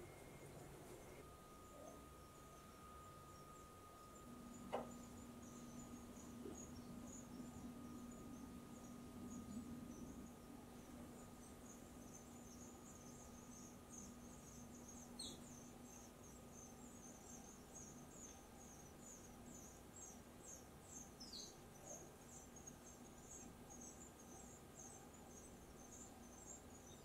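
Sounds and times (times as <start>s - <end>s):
faint high chirps: 0.0s - 27.0s
low steady hum: 0.0s - 27.0s.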